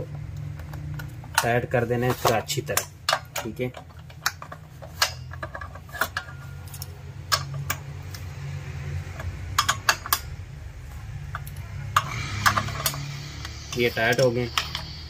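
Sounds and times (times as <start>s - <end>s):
socket tool clicking on bolts: 2.3s - 8.3s.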